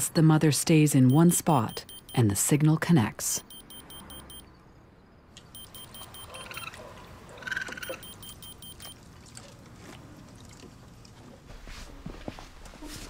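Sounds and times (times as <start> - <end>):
rapid electronic beeping: 1.0 - 2.5, 3.3 - 4.5, 5.6 - 6.7, 7.8 - 8.9.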